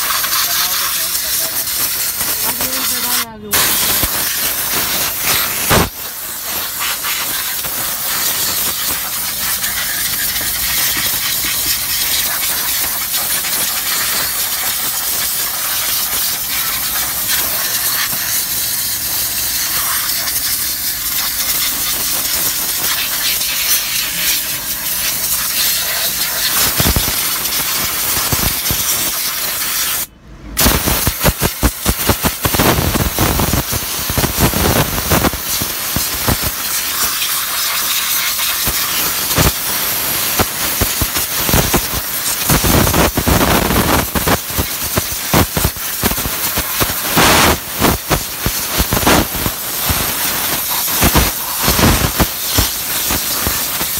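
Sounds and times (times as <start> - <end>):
spray gun hissing: 0.0 - 53.9.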